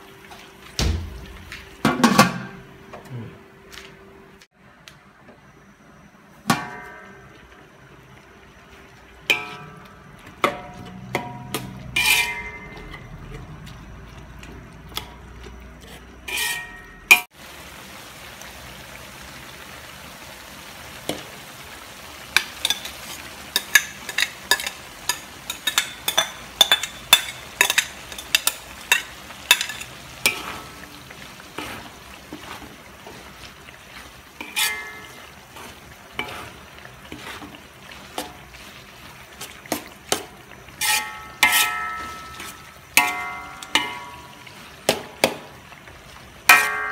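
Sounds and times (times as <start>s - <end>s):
food sizzling: 0.0s - 3.3s, 5.5s - 46.9s
metal spatula scraping a wok: 9.3s - 13.5s, 15.8s - 17.2s, 31.5s - 45.4s.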